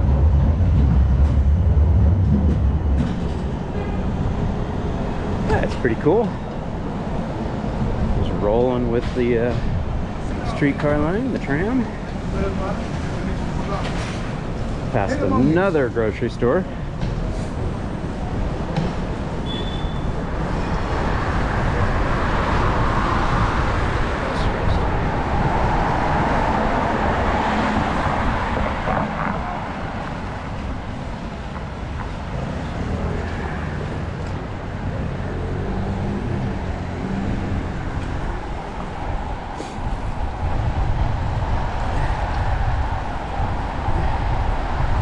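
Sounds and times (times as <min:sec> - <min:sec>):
heavy low rumble: 0:00.0 - 0:06.0
street traffic: 0:00.0 - 0:45.0.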